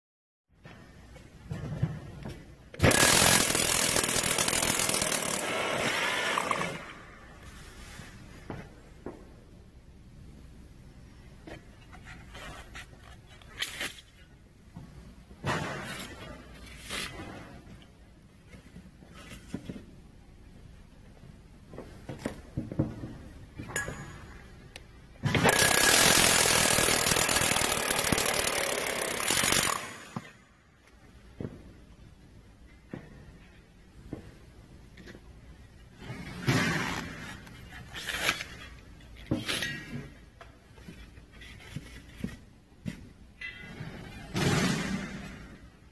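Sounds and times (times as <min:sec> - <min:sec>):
power drill cutting through panel: 0:25.5 - 0:30.0.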